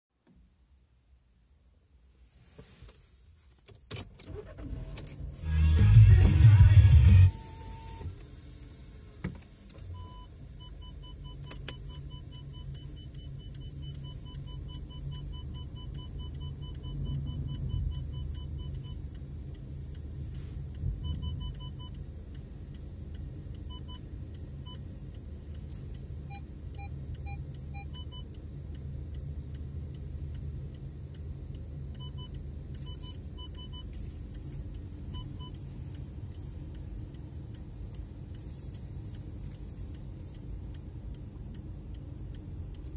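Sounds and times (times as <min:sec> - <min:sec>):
car engine rumble: 0:00.2 - 0:42.9
parking sensor beeps: 0:05.4 - 0:08.2, 0:09.8 - 0:19.2, 0:21.0 - 0:22.0, 0:23.6 - 0:24.9, 0:26.2 - 0:28.4, 0:32.0 - 0:34.5, 0:35.1 - 0:36.0
lower tone beeps: 0:09.9 - 0:19.0.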